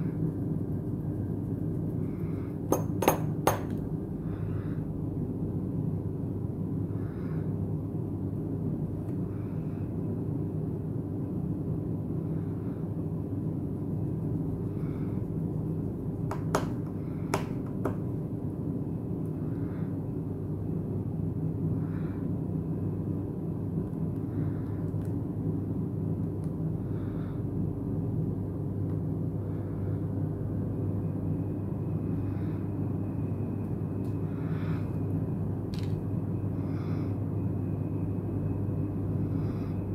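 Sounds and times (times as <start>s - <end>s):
low hum: 0.0s - 39.9s.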